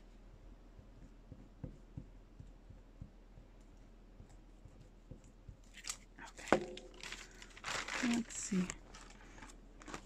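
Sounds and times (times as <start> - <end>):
soft clicks and taps on paper: 0.4 - 7.5.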